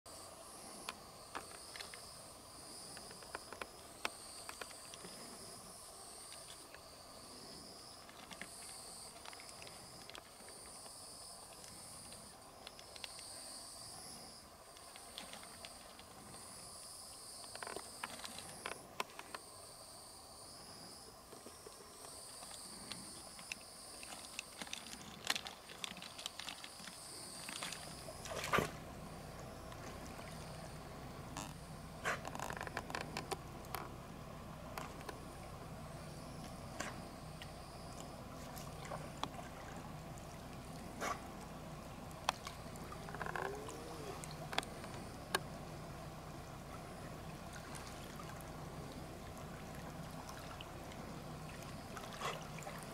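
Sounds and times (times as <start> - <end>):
insects trilling: 0.1 - 52.9
small clicks and rustles: 0.8 - 2.1, 2.8 - 5.4, 6.3 - 6.9, 7.5 - 13.3, 14.7 - 16.6, 17.4 - 19.4, 21.3 - 28.8, 31.3 - 34.0, 40.1 - 45.5.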